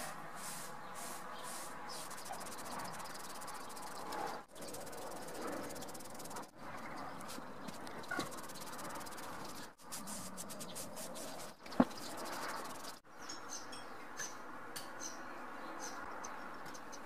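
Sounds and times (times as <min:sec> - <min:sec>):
sponge rubbing on carved wood: 0:00.4 - 0:06.5, 0:08.1 - 0:13.0.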